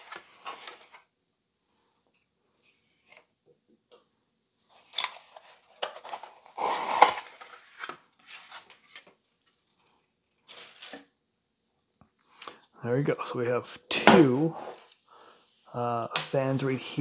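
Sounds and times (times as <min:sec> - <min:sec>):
cardboard packaging rustling: 0:00.0 - 0:01.1, 0:04.7 - 0:11.1.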